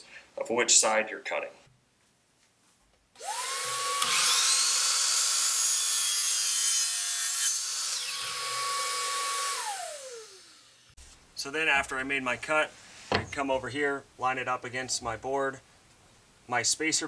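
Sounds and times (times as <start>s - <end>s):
miter saw motor: 3.2s - 10.9s
saw blade cutting vinyl plank: 3.2s - 10.9s.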